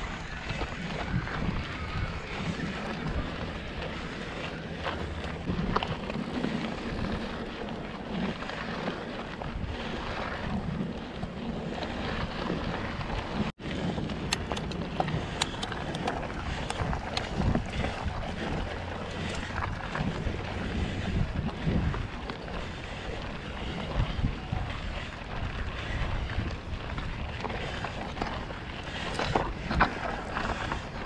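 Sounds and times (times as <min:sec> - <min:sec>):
bike rolling on gravel trail: 0:00.0 - 0:31.0
wind buffeting microphone: 0:00.0 - 0:31.0
sharp clicks and ticks: 0:14.1 - 0:17.6.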